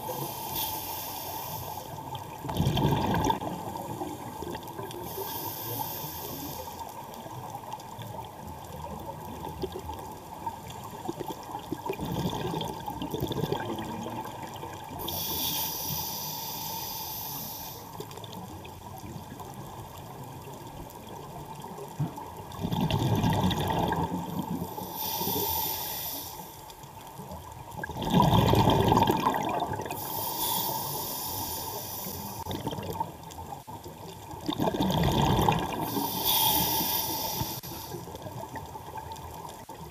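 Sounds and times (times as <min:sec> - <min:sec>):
regulator hissing on inhale: 0:00.0 - 0:02.2, 0:03.9 - 0:07.0, 0:15.0 - 0:18.2, 0:24.5 - 0:26.8, 0:29.9 - 0:32.5, 0:35.8 - 0:38.2
exhaled bubbles rushing: 0:02.4 - 0:04.9, 0:11.0 - 0:15.0, 0:22.5 - 0:24.6, 0:27.8 - 0:30.0, 0:32.4 - 0:33.2, 0:34.3 - 0:36.1.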